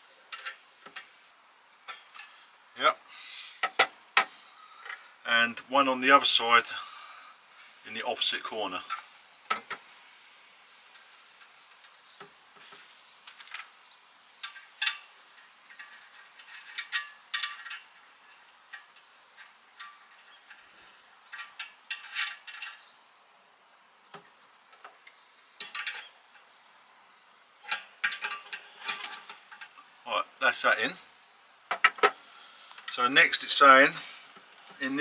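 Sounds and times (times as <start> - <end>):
brass fittings clinking on radiator: 14.4 - 20.7, 21.3 - 22.8, 25.6 - 26.1, 27.6 - 29.8.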